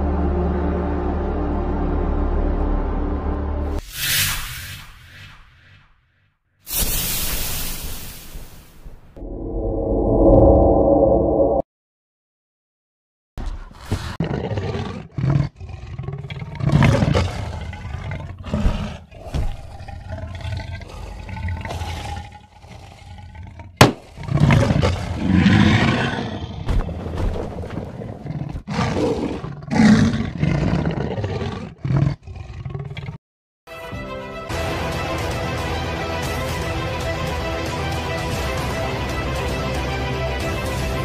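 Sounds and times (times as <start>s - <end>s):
big cat growling and roaring: 13.7s - 33.2s
sharp crack: 23.8s - 24.3s.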